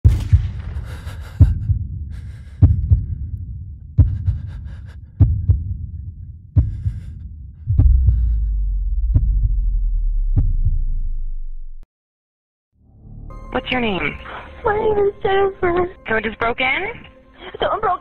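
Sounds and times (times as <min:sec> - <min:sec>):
heartbeat thumps: 0:00.0 - 0:11.4
low drone: 0:00.1 - 0:11.8.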